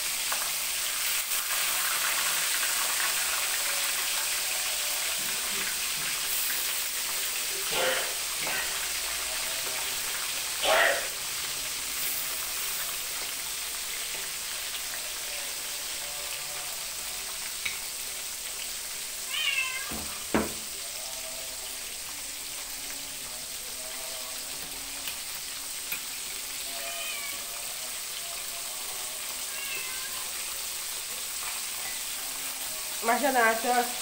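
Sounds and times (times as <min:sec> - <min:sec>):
fish sizzling in hot oil: 0:00.0 - 0:34.0
cat meowing: 0:19.2 - 0:20.3, 0:26.6 - 0:27.7, 0:29.4 - 0:30.5
sharp knock: 0:19.9 - 0:20.6.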